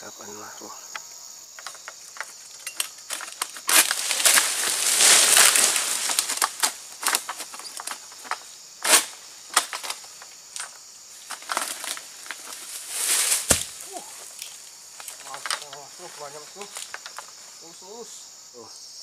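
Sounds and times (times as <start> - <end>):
sharp cracks: 1.6 - 15.9
sickle cutting palm fronds: 1.6 - 17.4.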